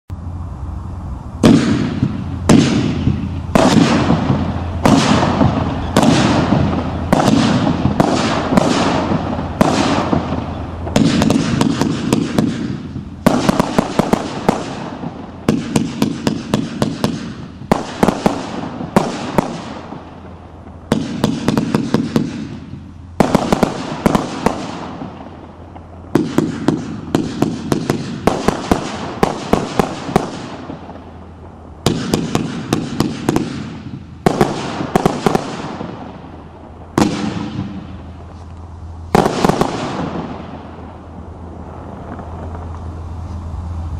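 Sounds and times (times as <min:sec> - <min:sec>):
firework crackles: 0:00.1 - 0:43.9
firework shots banging: 0:01.3 - 0:43.0.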